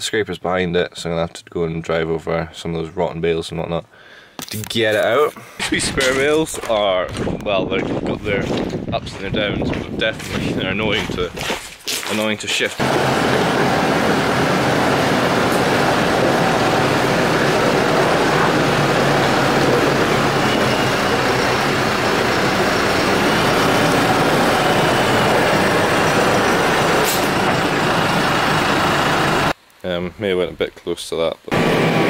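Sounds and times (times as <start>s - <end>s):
tractor diesel engine running: 12.8s - 29.6s.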